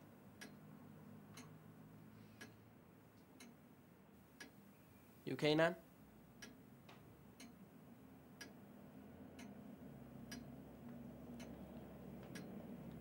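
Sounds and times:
faint low hum: 0.0s - 13.0s
clock ticking: 0.4s - 0.7s, 1.4s - 1.7s, 2.4s - 2.6s, 3.3s - 3.6s, 4.4s - 4.6s, 6.4s - 6.7s, 7.3s - 7.6s, 8.4s - 8.6s, 10.3s - 10.6s, 11.3s - 11.6s, 12.2s - 13.0s.

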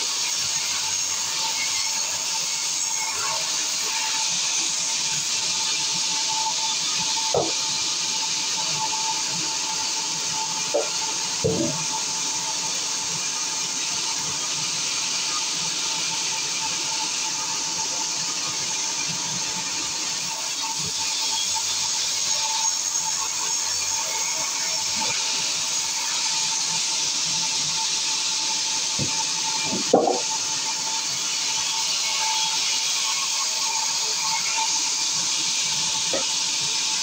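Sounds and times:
band saw cutting wood: 0.0s - 12.5s, 20.2s - 37.0s
saw motor whine: 0.0s - 37.0s
timber knocking: 7.3s - 7.6s, 29.7s - 30.3s.

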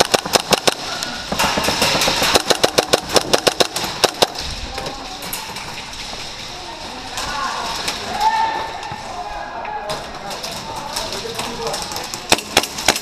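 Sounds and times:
rapid airsoft gunfire: 0.0s - 4.5s, 12.2s - 13.0s.

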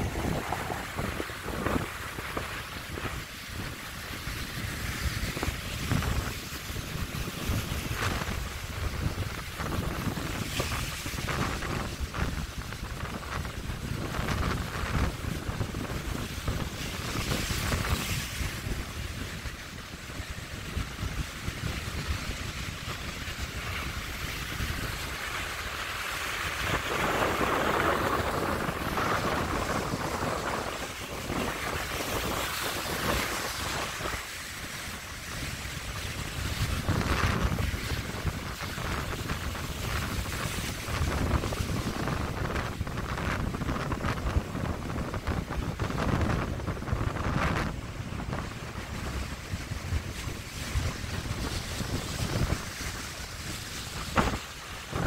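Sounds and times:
waves breaking: 0.0s - 55.0s
wind rumbling on microphone: 0.0s - 55.0s.

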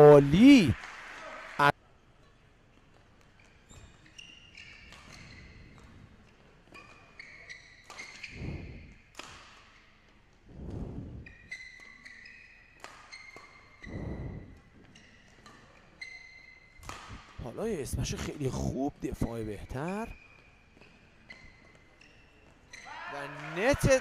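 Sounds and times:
shoes squeaking on court: 2.8s - 9.0s, 11.2s - 17.4s, 19.8s - 22.9s
muffled swells: 8.3s - 9.0s, 10.5s - 11.4s, 13.9s - 14.7s.

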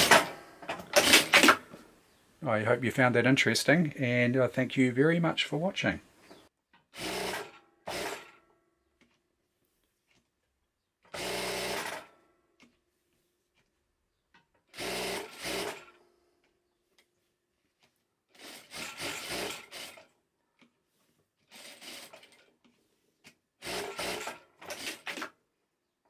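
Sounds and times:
sewing machine stitching: 7.0s - 8.4s, 11.1s - 12.2s, 14.7s - 16.0s, 18.3s - 20.2s, 21.4s - 22.5s, 23.6s - 25.4s.

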